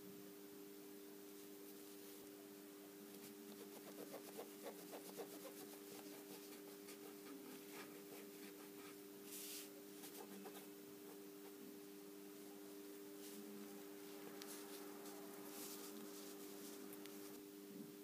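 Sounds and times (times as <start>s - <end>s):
steady low hum: 0.0s - 18.0s
cotton swab scratching on nail: 3.2s - 7.0s.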